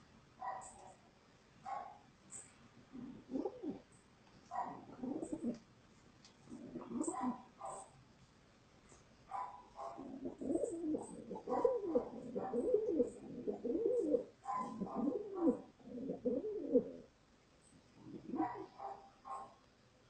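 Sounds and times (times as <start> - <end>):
pigeon cooing: 2.9 - 3.9, 4.6 - 5.6, 6.5 - 7.8, 9.8 - 17.1, 18.0 - 19.5.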